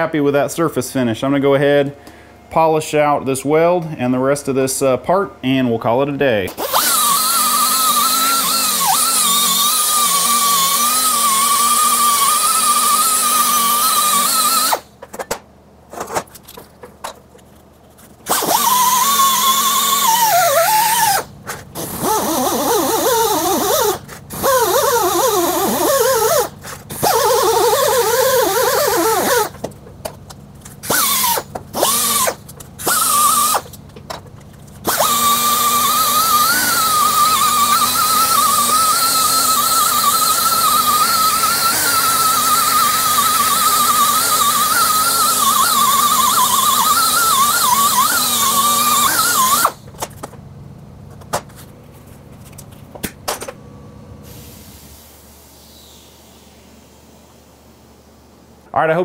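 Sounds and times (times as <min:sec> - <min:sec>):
die grinder whine: 0:06.5 - 0:15.0, 0:18.2 - 0:50.4
air hiss: 0:54.2 - 0:57.6.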